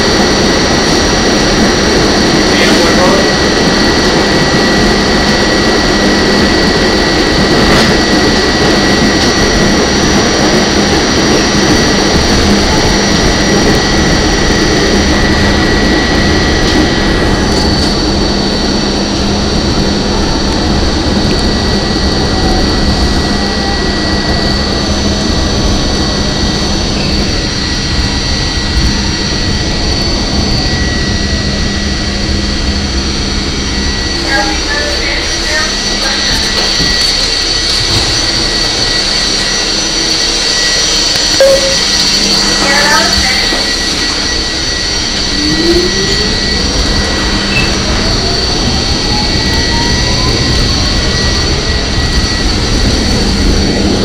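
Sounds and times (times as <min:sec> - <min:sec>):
high-pitched train whine: 0:00.0 - 0:54.0
subway wheels rumbling on rail: 0:00.0 - 0:54.0.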